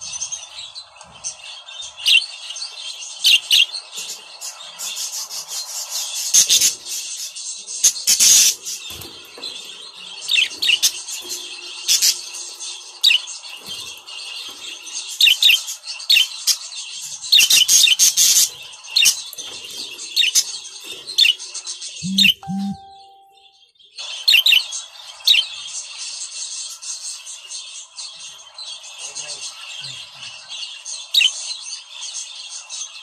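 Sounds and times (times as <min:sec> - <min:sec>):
budgerigars chattering and chirping: 0:00.0 - 0:23.3, 0:24.0 - 0:33.0.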